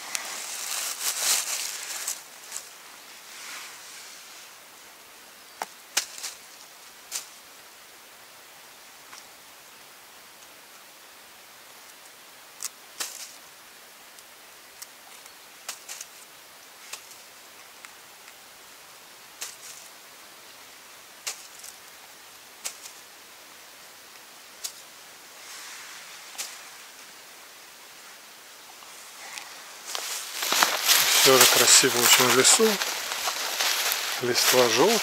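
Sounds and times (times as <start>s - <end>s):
steady hiss: 0.0s - 35.0s
brief rustle: 25.4s - 26.7s, 28.8s - 35.0s.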